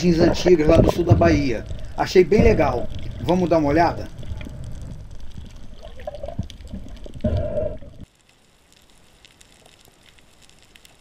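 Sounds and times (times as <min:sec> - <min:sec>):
faint crackling clicks: 0:00.0 - 0:11.0
low rumble of water movement: 0:00.0 - 0:11.0
quiet underwater hiss: 0:00.0 - 0:11.0
underwater knocks: 0:00.6 - 0:01.5.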